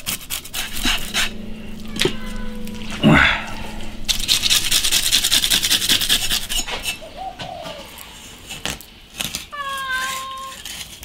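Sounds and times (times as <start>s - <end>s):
knife scraping fish scales: 10.0s - 11.0s.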